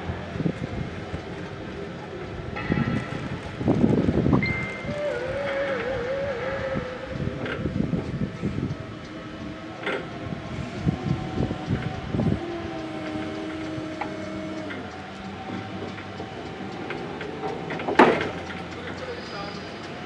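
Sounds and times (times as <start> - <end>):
electric motor whine: 10.0 - 18.6.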